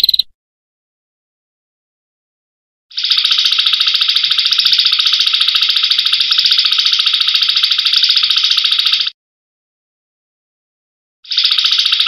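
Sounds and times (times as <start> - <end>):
buzzy animal trill: 0.0 - 0.3.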